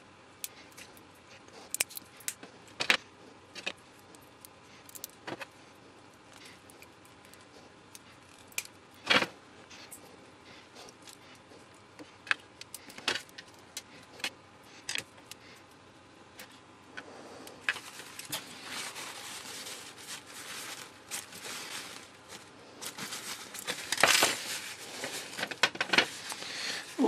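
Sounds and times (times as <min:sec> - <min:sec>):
crunching and scraping of casing: 0:00.4 - 0:10.0, 0:17.5 - 0:27.0.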